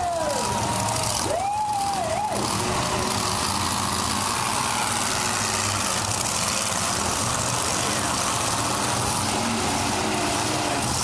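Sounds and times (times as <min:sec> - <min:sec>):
monster truck engines running: 0:00.0 - 0:11.0.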